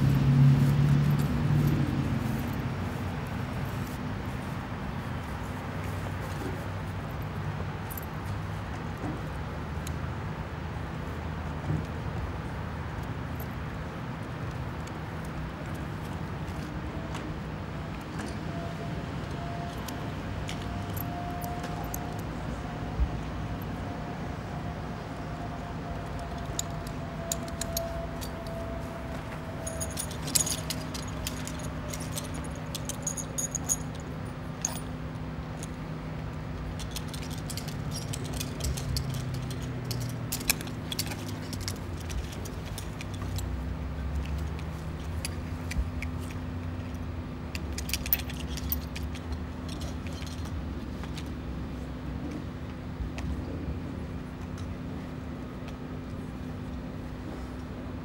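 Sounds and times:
climbing gear clinking and jingling: 19.3 - 23.8, 25.9 - 35.8, 36.6 - 51.3.

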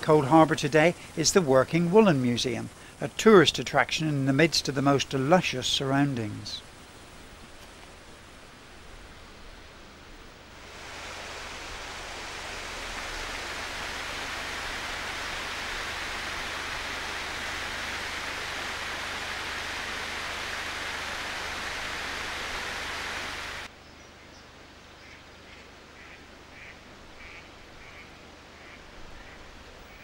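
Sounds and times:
water rushing over a weir: 0.0 - 9.2, 10.1 - 23.7.

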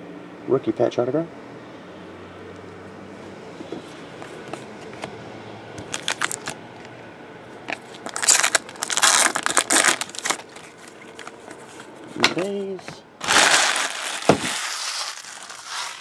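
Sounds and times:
foil wrapper crinkling: 5.9 - 6.6, 7.7 - 11.8, 13.2 - 16.0.

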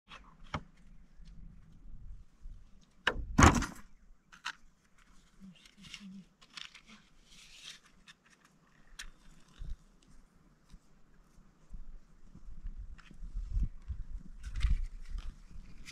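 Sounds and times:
loud thump: 3.1 - 3.8
rustling: 4.4 - 13.6.

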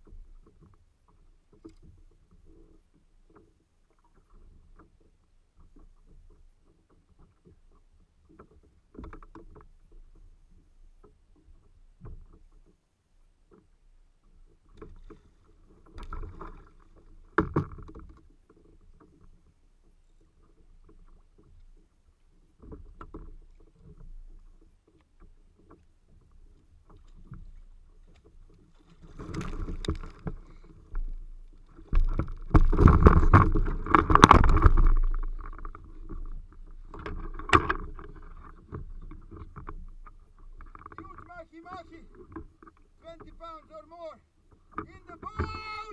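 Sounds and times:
water splashing against kayak: 0.0 - 45.9
rod and reel knocks: 14.5 - 19.4, 22.6 - 41.3.

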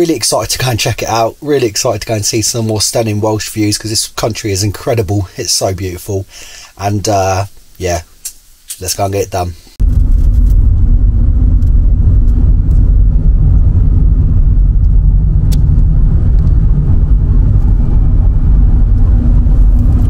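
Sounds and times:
car engine and tyre rumble: 9.8 - 20.0.

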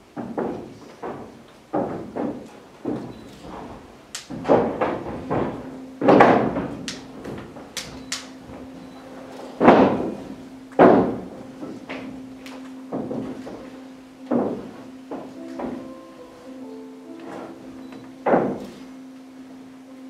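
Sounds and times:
sharp clicks: 7.8 - 8.4.

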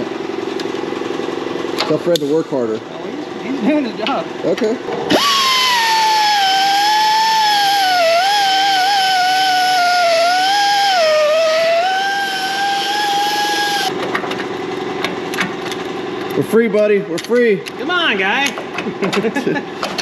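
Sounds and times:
belt sander grinding metal: 4.9 - 13.9.

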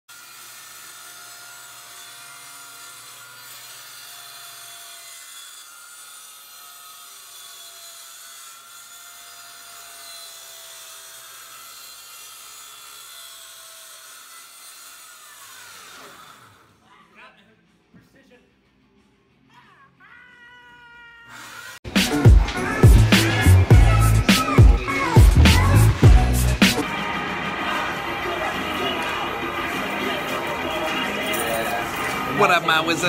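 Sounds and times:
circular saw cutting panel: 0.1 - 16.6.

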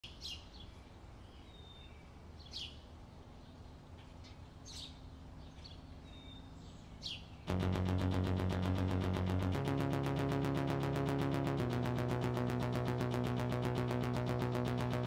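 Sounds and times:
faint low hum: 5.0 - 15.0.

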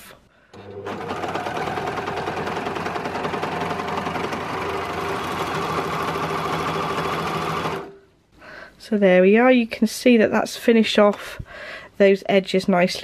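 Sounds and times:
overlocker sewing machine running: 0.6 - 8.0.

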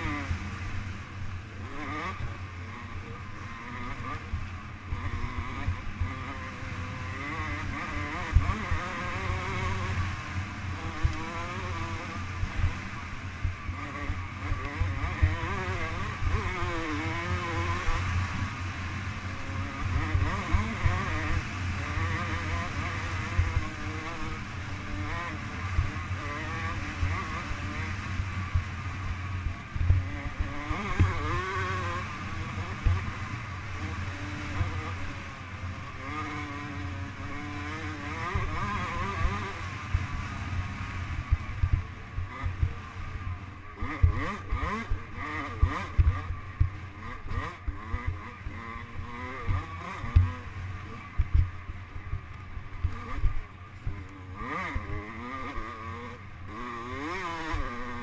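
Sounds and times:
motorcycle engine revving: 0.0 - 58.0
low thumps from rough ground: 43.8 - 54.9.

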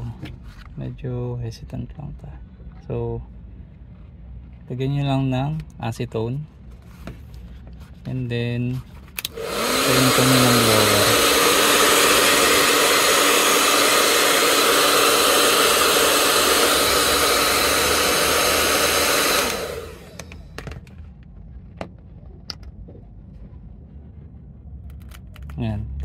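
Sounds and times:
hot-air blower rushing air: 9.2 - 20.7.

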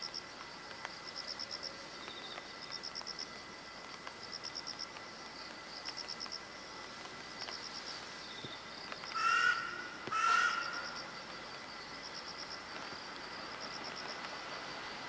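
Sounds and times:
insects chirping: 0.0 - 15.0
crow cawing: 9.2 - 11.0.

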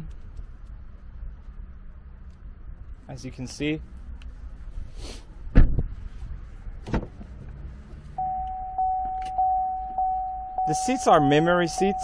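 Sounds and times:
car door shutting: 6.8 - 7.3
car warning chime dinging: 8.2 - 12.0.

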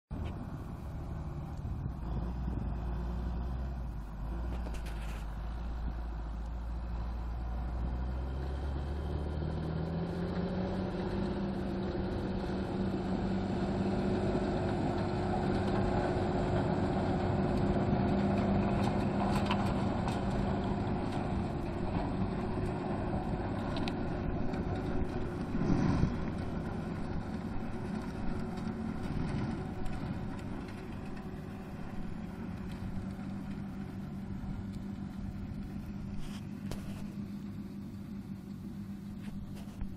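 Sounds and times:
tractor engine under load: 0.1 - 39.9
mulcher rotors whirring and chopping: 7.4 - 39.9
low hum rising in pitch: 19.8 - 39.7.

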